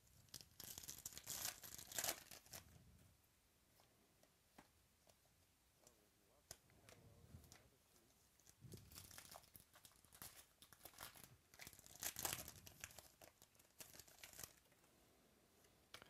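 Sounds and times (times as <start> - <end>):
wrapper crinkling and tearing: 0.2 - 2.8, 8.4 - 14.7.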